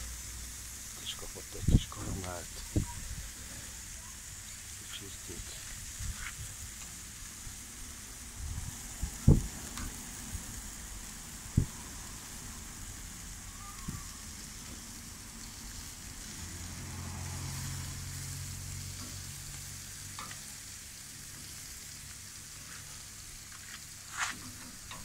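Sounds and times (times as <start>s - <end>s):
meat sizzling on grill: 0.0s - 25.0s
sharp crackles: 13.3s - 25.0s.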